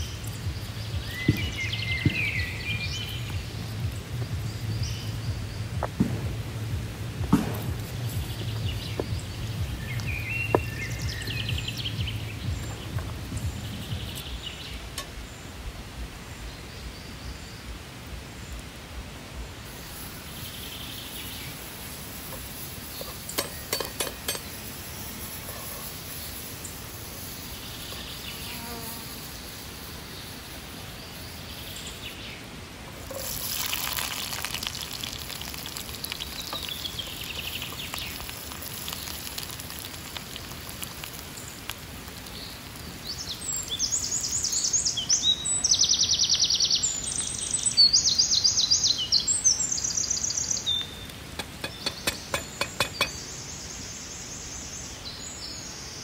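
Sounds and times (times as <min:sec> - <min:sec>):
fly buzzing: 0:28.0 - 0:29.4
butter sizzling in a pan: 0:32.9 - 0:43.9.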